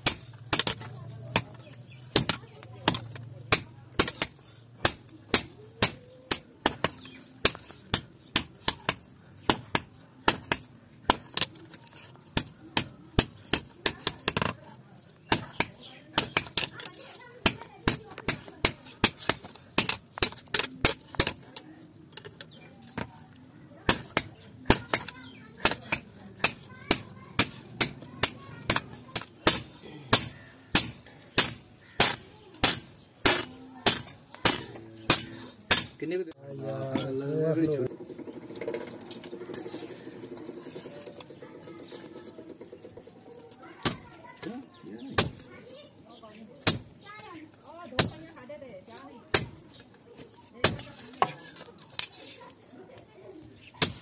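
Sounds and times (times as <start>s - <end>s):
hammer striking chisel on metal: 0.0s - 11.6s, 12.3s - 14.6s, 15.3s - 21.6s, 23.9s - 36.1s, 43.8s - 44.4s, 45.2s - 45.7s, 46.6s - 47.2s, 48.0s - 48.5s, 49.3s - 49.8s, 50.6s - 51.4s, 53.8s - 54.0s.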